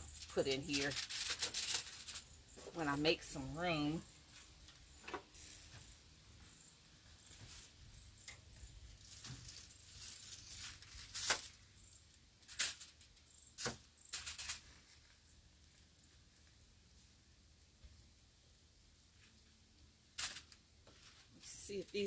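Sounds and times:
aluminium foil crinkling: 0.0s - 6.0s, 7.0s - 16.8s, 19.1s - 22.0s.

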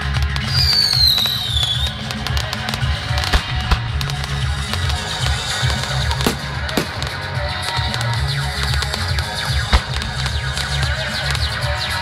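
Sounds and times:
music with pulsing bass beat: 0.0s - 12.0s
firework bangs: 0.3s - 11.5s
firework whistle falling: 0.4s - 2.0s.

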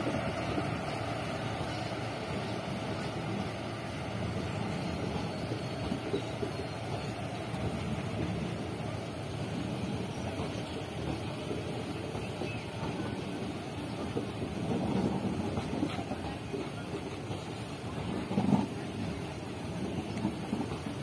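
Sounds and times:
train wheels rumbling on rails: 0.0s - 21.0s.

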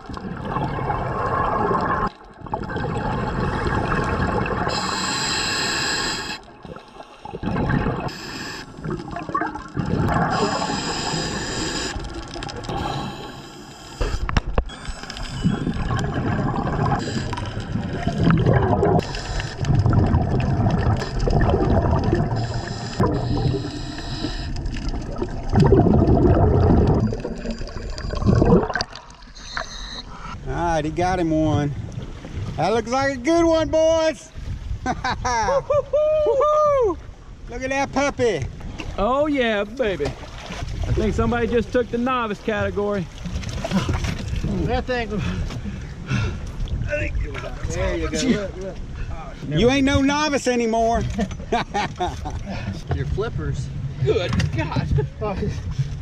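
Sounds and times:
exhaled bubbles gurgling underwater: 0.0s - 30.2s.

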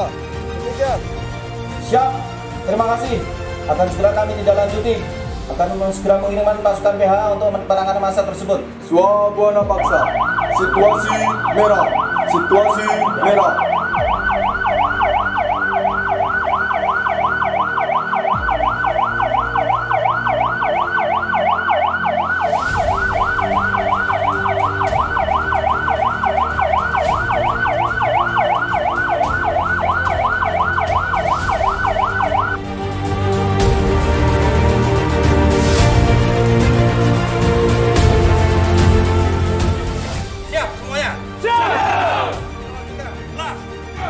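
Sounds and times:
music: 0.0s - 44.0s
warbling electronic alarm siren: 9.8s - 32.6s.

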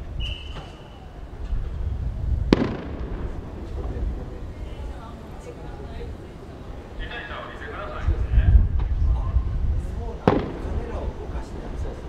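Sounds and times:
wind buffeting microphone: 0.0s - 12.0s
high whistle-like tone: 0.2s - 1.3s.

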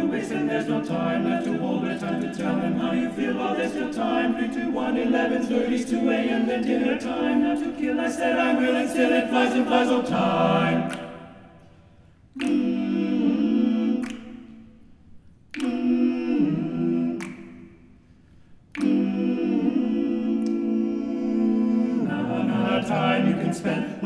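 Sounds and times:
men's choir singing chords: 0.0s - 11.7s, 12.4s - 14.8s, 15.5s - 17.9s, 18.8s - 24.0s.

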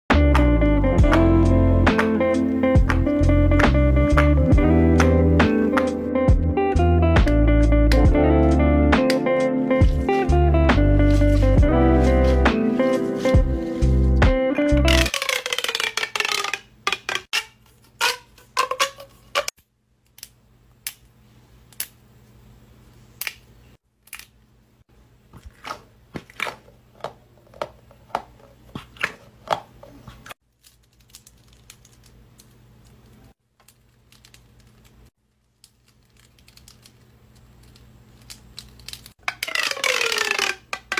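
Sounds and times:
sliding tones from stretched tube: 14.8s - 19.5s, 39.2s - 40.9s
plastic pop tubes clicking: 15.1s - 18.9s, 39.2s - 40.9s.

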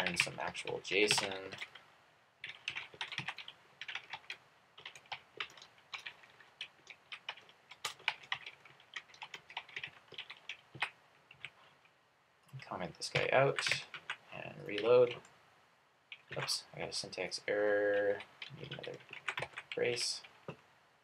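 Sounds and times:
typing on computer keyboard: 0.0s - 1.8s, 2.4s - 11.6s, 17.9s - 19.9s.

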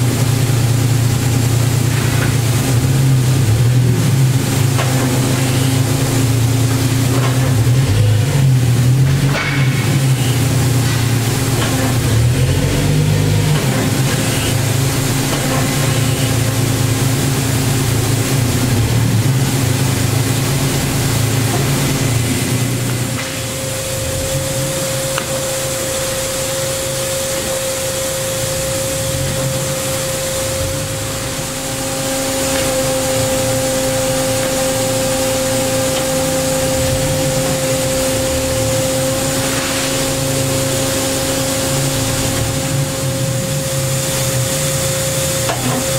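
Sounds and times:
high machine whine: 0.0s - 45.9s
lathe machine hum: 0.0s - 45.9s
second machine tone: 5.2s - 6.1s, 14.0s - 14.8s, 15.5s - 16.6s.

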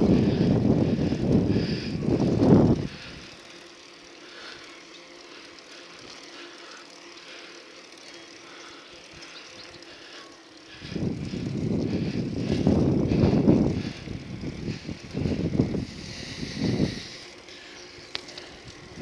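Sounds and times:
wind buffeting microphone: 0.0s - 3.4s, 10.7s - 17.2s
faint hum: 0.0s - 19.0s.

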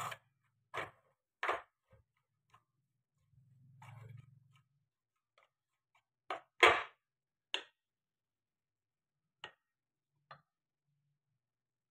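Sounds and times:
wooden spatula scraping metal pan: 0.0s - 1.0s.

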